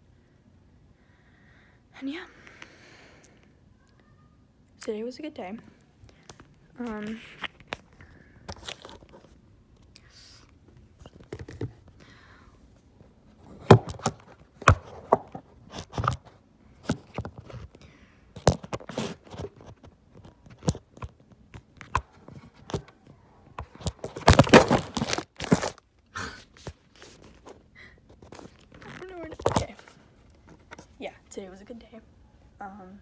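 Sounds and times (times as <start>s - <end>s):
objects knocking and scraping on shelf: 13.4s - 16.3s.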